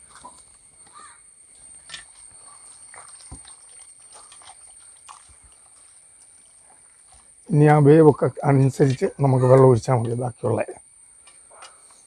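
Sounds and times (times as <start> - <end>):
hand mixing meat in wet sauce: 2.4 - 7.3.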